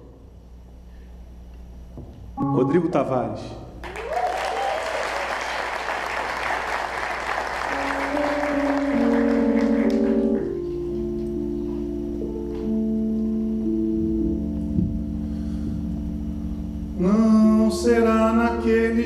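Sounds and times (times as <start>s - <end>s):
held keyboard chords: 2.4s - 3.6s, 6.6s - 19.0s
audience applause: 3.8s - 10.6s.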